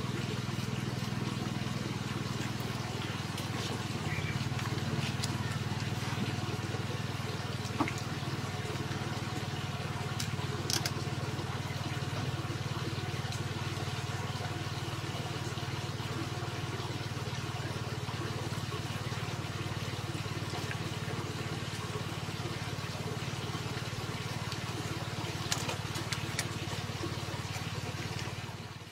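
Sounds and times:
low mechanical hum: 0.0 - 28.9.

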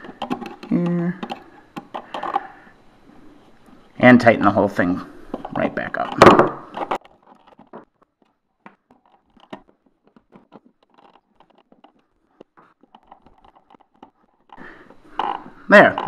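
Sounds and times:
screwdriver clicking and scraping: 0.0 - 2.5, 5.4 - 15.6.

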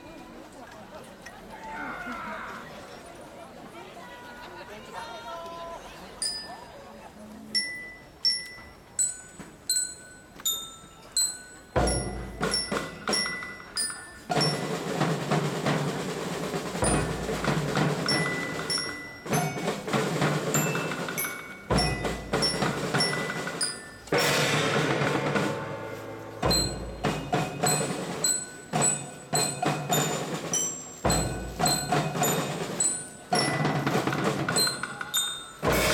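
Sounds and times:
ringing metallic strikes: 11.1 - 15.5, 16.8 - 35.9
gong ringing: 24.2 - 27.7.

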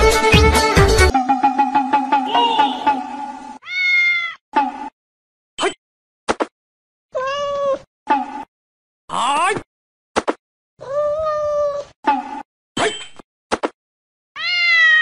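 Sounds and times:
cat meowing: 3.6 - 4.4, 7.1 - 7.8, 10.8 - 11.8, 14.4 - 15.0.

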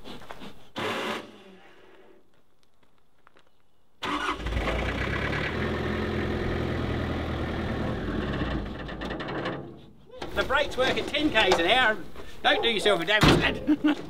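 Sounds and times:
truck engine running: 4.4 - 8.9.

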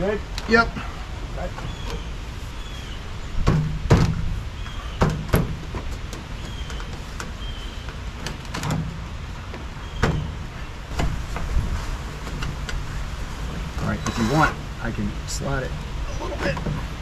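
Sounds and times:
sharp knocks and clunks: 3.4 - 4.3, 5.0 - 6.3.

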